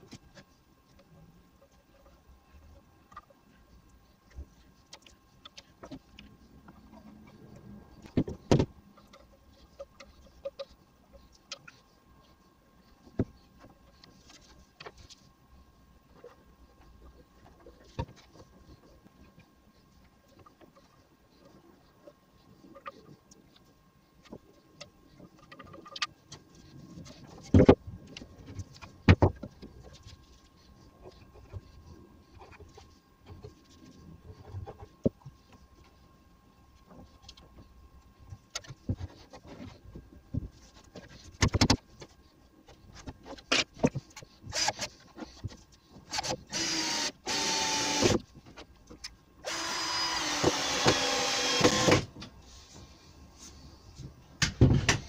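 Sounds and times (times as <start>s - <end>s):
small power tool motor: 46.1s - 48.2s, 49.4s - 52.1s.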